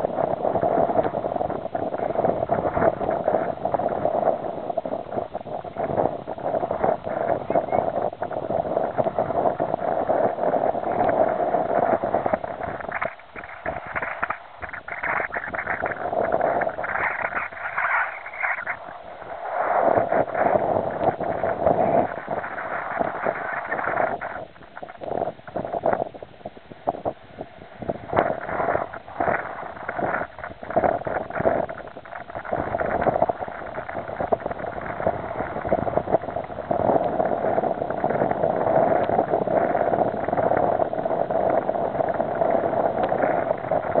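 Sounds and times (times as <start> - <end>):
waves lapping against rocks: 0.0 - 27.2, 27.8 - 44.0
wind on microphone: 0.0 - 44.0.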